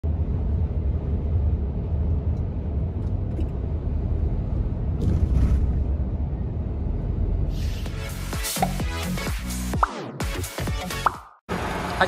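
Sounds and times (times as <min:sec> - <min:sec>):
truck engine and road rumble: 0:00.0 - 0:08.4.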